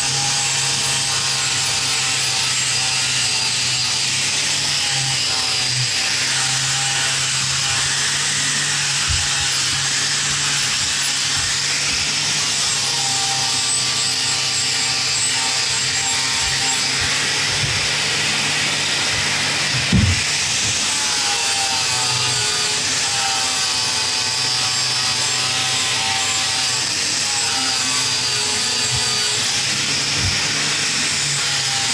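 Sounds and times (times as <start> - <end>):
angle grinder grinding metal: 0.0 - 31.9
short knock: 19.8 - 20.2.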